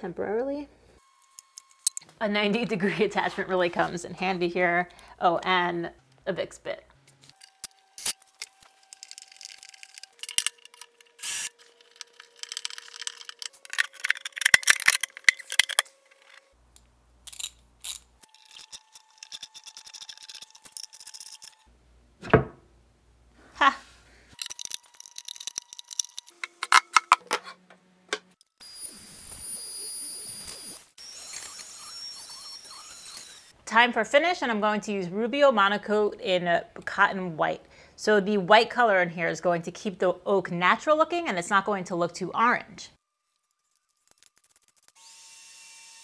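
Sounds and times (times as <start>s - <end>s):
metal clicks and rattles: 8.9s - 11.1s, 11.8s - 16.5s
router whining: 9.7s - 13.6s, 28.6s - 33.5s
cordless drill driving screws: 11.2s - 11.6s, 31.0s - 33.5s.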